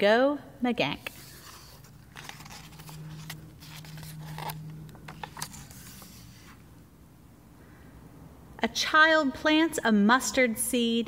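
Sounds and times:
low steady hum: 0.0s - 10.6s
book pages turning: 1.0s - 6.8s.

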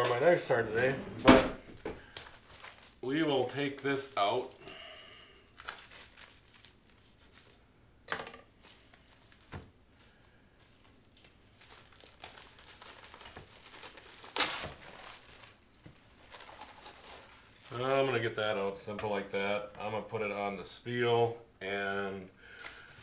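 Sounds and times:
plastic wrap crinkling: 1.7s - 7.6s, 8.5s - 18.1s, 22.5s - 23.0s.

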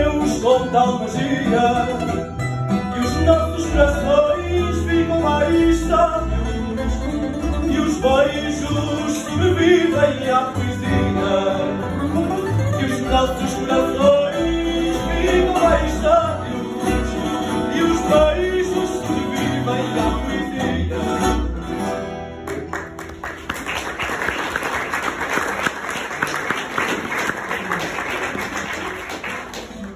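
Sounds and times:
plucked guitars: 0.0s - 24.0s, 25.0s - 29.9s
person singing: 7.7s - 21.2s
audience applause: 22.4s - 29.9s.

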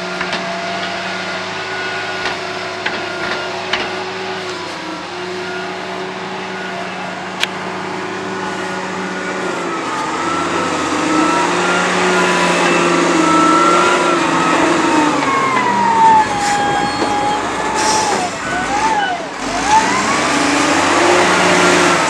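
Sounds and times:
diesel engine running under load: 0.0s - 22.0s.

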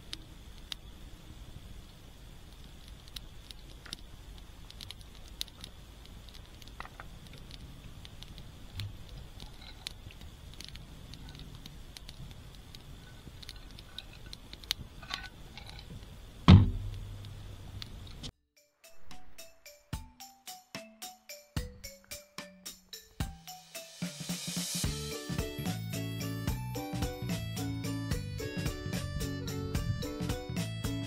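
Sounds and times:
wood fire crackling and popping: 0.0s - 18.3s
loud thump: 16.5s - 17.0s.

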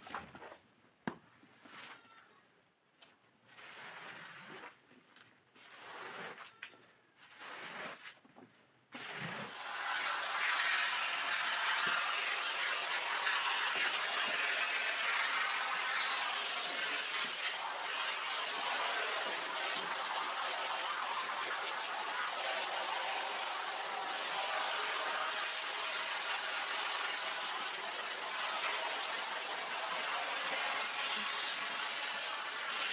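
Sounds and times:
scraper scraping wet rug: 3.5s - 4.9s, 5.5s - 6.5s, 7.2s - 8.2s, 9.0s - 32.9s
spray gun jetting water: 9.5s - 32.9s.

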